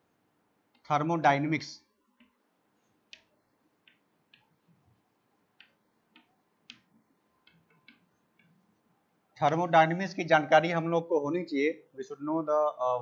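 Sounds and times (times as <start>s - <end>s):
chalk tapping on chalkboard: 5.6s - 8.6s.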